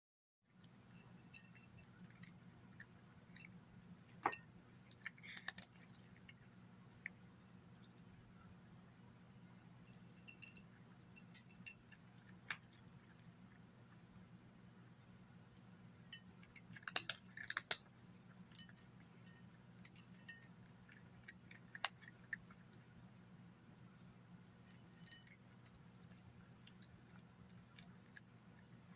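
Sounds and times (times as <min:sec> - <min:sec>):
cat crunching dry food: 0:00.6 - 0:09.1, 0:09.7 - 0:28.9
kibble clicking against glass: 0:15.9 - 0:17.9.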